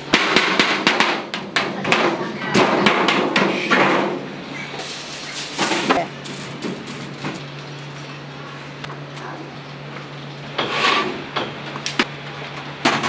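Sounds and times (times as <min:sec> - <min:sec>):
hammer knocking on metal: 0:00.1 - 0:04.2.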